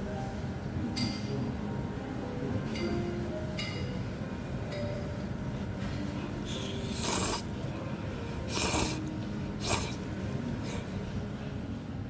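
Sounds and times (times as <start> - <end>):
person slurping noodles: 6.9 - 7.5, 8.4 - 10.0.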